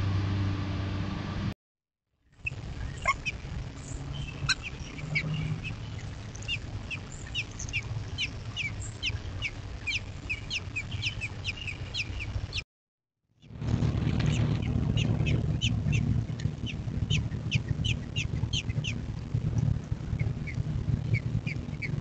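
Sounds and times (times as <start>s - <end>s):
nestlings chirping: 2.4s - 12.6s, 14.2s - 22.0s
longer falling bird calls: 2.5s - 12.6s.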